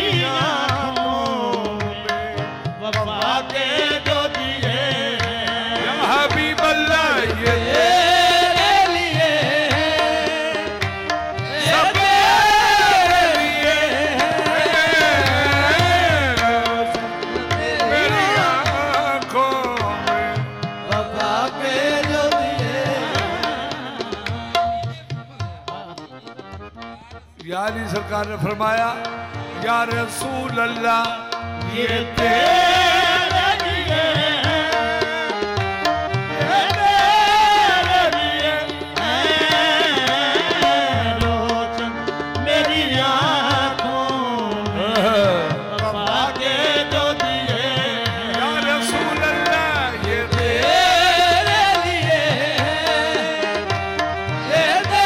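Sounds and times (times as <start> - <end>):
tabla drumming: 0.0 - 55.0
devotional ensemble music: 28.3 - 55.0.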